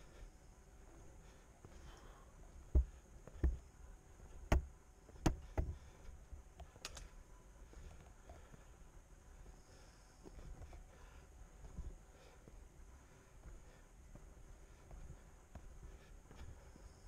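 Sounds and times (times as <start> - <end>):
footsteps on concrete steps: 0.9 - 3.7, 4.3 - 6.8, 10.2 - 17.0.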